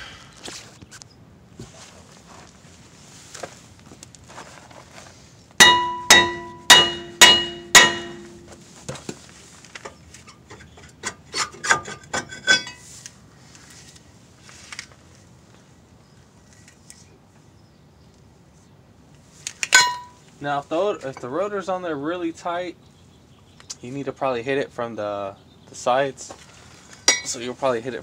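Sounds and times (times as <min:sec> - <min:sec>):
hammer ringing on brake rotor: 0:05.6 - 0:08.6, 0:19.8 - 0:20.2, 0:27.1 - 0:27.4.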